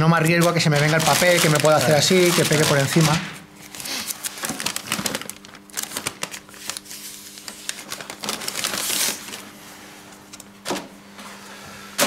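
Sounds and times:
paper rustling and crinkling: 0:00.2 - 0:09.6.

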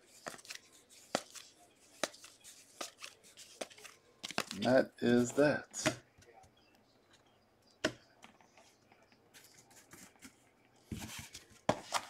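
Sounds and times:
cards rustling: 0:00.0 - 0:06.0, 0:08.3 - 0:12.0.

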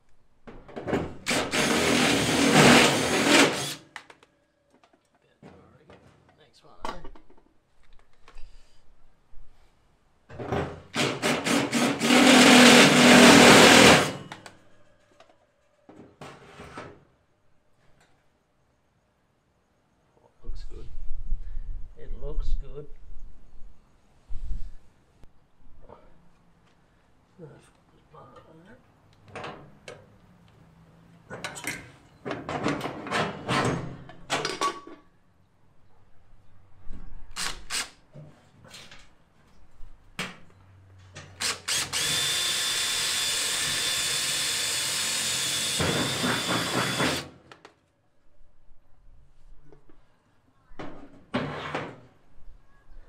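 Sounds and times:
cordless drill whirring: 0:01.3 - 0:03.8, 0:11.0 - 0:14.2, 0:41.4 - 0:47.3.

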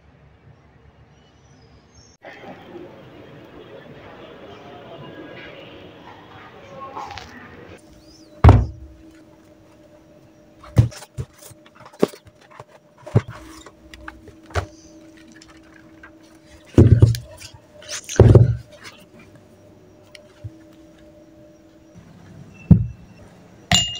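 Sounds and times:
faint steady hum: 0:02.3 - 0:23.9
books thudding on desk: 0:08.4 - 0:09.0, 0:10.6 - 0:15.6, 0:16.6 - 0:17.4, 0:18.1 - 0:18.7.

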